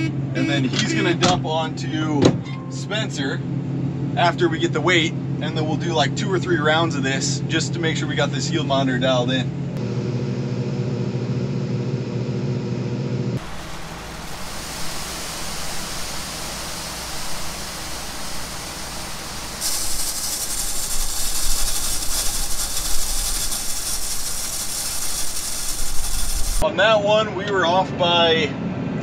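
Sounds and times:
beans pouring into a wagon: 0:13.4 - 0:26.6
combine engine humming: 0:13.4 - 0:26.6
steady rushing noise: 0:13.4 - 0:26.7.

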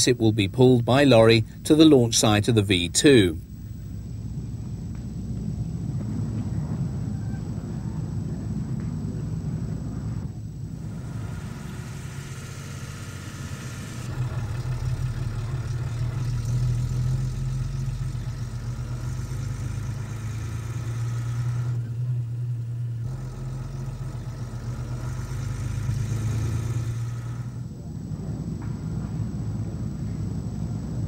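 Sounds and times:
engine idling: 0:00.0 - 0:28.3.

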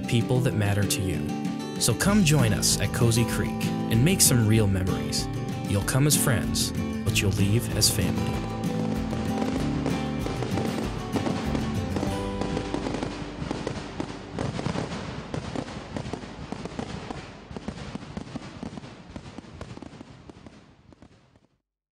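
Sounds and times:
background music: 0:00.0 - 0:17.1
fireworks popping and crackling: 0:07.2 - 0:21.6.

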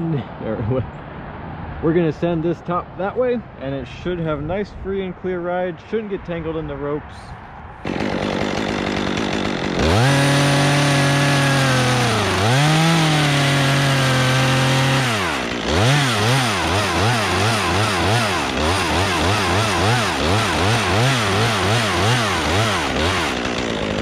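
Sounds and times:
chainsaw cutting wood: 0:07.8 - 0:24.0.

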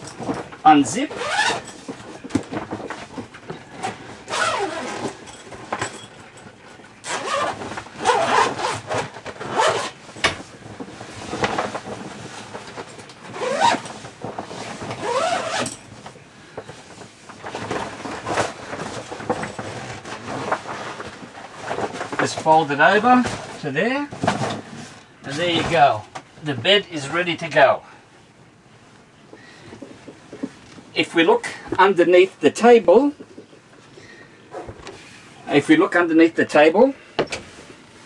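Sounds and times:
zip being pulled open: 0:01.1 - 0:01.8, 0:04.3 - 0:05.2, 0:07.0 - 0:10.0, 0:13.3 - 0:13.9, 0:14.9 - 0:15.8.

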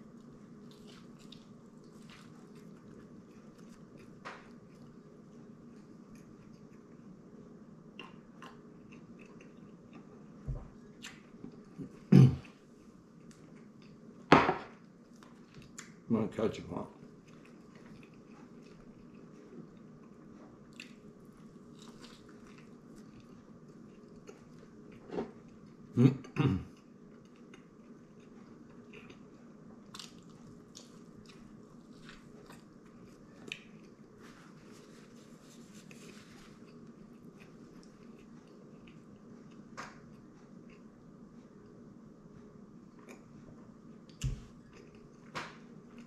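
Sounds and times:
man chewing food: 0:00.0 - 0:16.0, 0:17.0 - 0:46.0.

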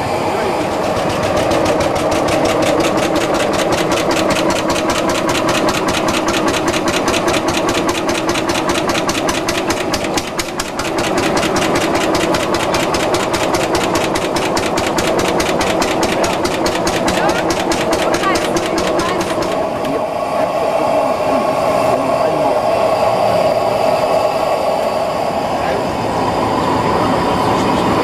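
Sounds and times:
old engine idling: 0:00.0 - 0:22.6.

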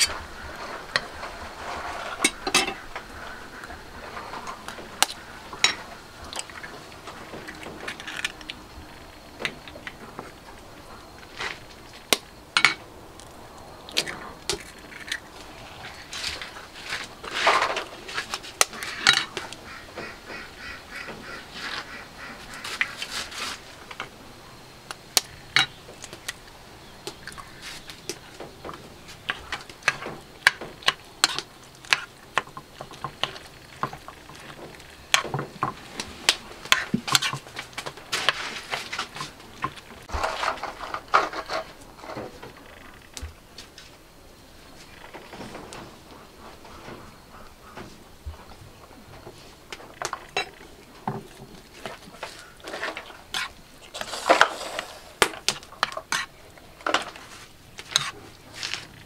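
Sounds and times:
ducks quacking: 0:18.7 - 0:23.6
metal spoon scraping a bowl: 0:52.7 - 0:55.1, 0:55.8 - 0:56.3.

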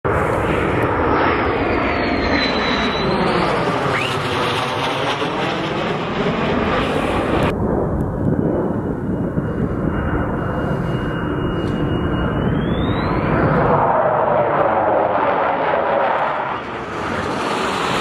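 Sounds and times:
jet engines rumbling overhead: 0:00.1 - 0:18.0
high jet whistle: 0:00.2 - 0:05.2, 0:08.7 - 0:15.2.

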